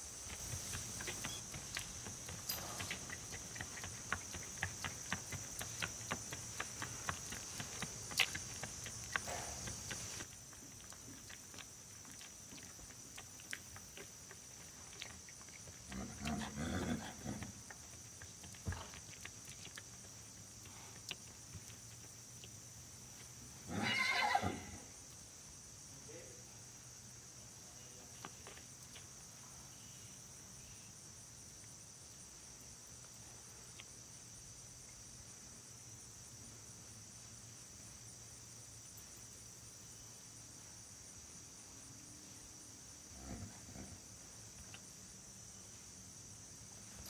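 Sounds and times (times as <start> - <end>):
hooves clip-clopping on asphalt: 0.0 - 23.4, 28.0 - 29.4
insects buzzing: 0.0 - 47.0
horse whinny: 23.7 - 24.9.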